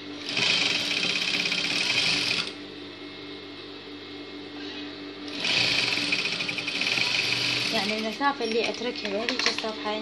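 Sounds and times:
sewing machine stitching: 0.2 - 2.6, 5.3 - 8.8.

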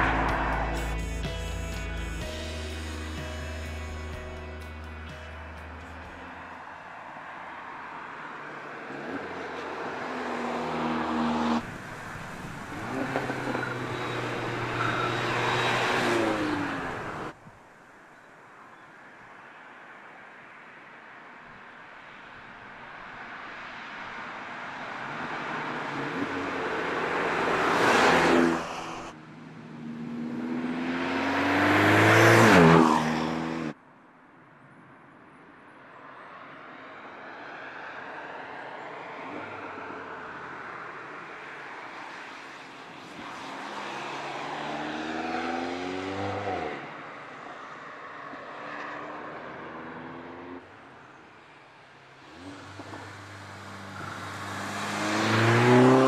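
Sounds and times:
car engine accelerating: 0.0 - 6.5, 8.9 - 17.4, 29.8 - 33.8, 52.2 - 56.0.

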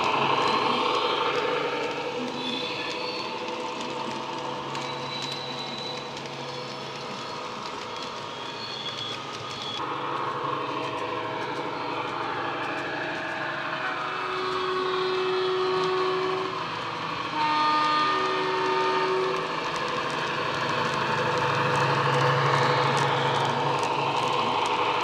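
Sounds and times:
model train wheels on track: 0.0 - 25.0
train horn blasts: 13.8 - 19.5.

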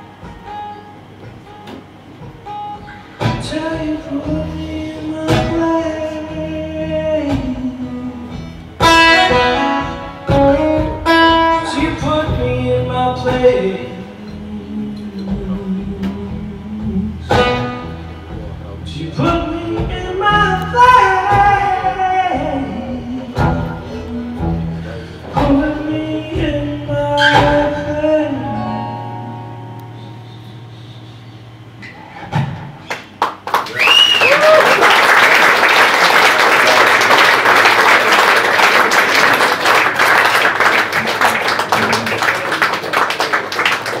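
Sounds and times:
acoustic chords: 0.0 - 33.5
audience applauding: 32.8 - 44.0.

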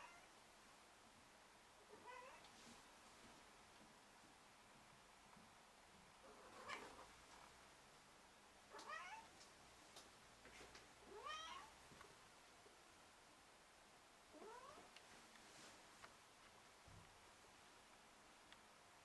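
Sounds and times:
cat meowing: 6.3 - 7.0, 8.7 - 9.3, 11.1 - 11.7, 14.4 - 14.9.

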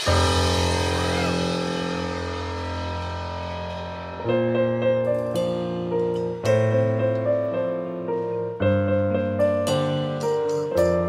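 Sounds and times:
live band playing: 0.0 - 2.7.

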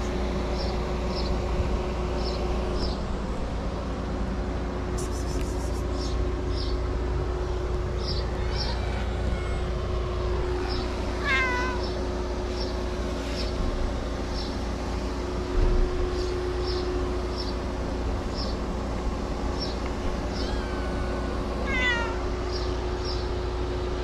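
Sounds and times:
steady low hum: 0.0 - 24.0
cats meowing: 7.9 - 12.1, 19.9 - 23.2.

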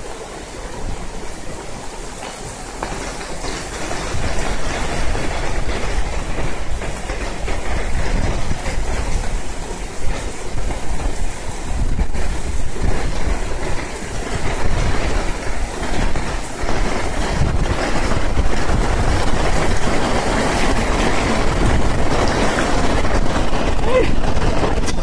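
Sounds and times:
heavy rain pouring: 0.0 - 25.0.

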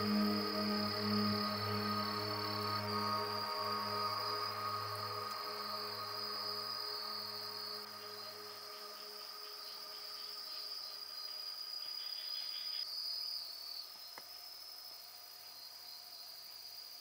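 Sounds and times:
soft background music: 0.0 - 11.1
insects trilling: 0.0 - 17.0.

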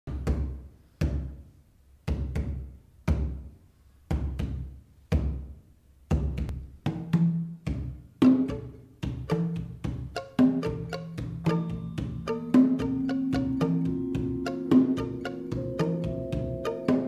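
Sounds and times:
gamelan ensemble playing: 9.3 - 17.0.

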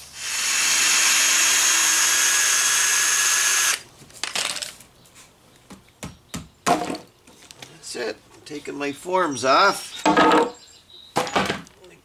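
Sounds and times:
power drill whining: 0.0 - 3.8
wood knocking: 10.0 - 10.6.

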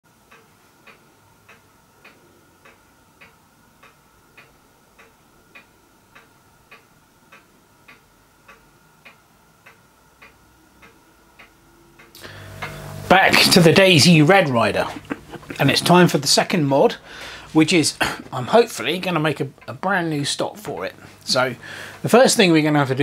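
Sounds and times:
faint steady ticking: 0.1 - 23.0
faint high whine: 11.6 - 23.0.

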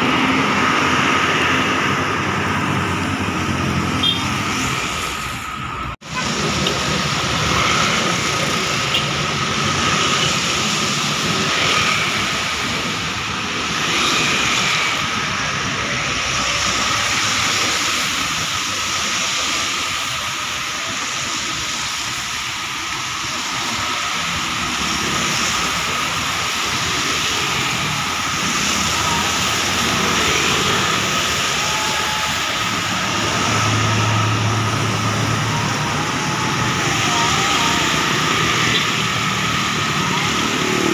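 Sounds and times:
road traffic passing: 0.0 - 40.9
tyres hissing on wet road: 0.0 - 40.9
coach engine hum: 15.0 - 40.9.

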